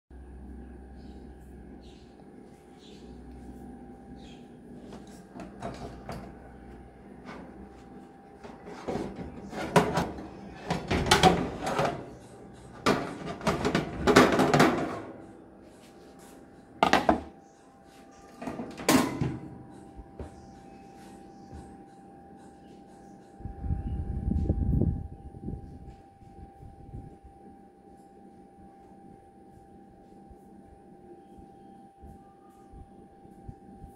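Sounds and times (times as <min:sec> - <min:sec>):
metal pan scraping on oven rack: 0:08.4 - 0:15.2.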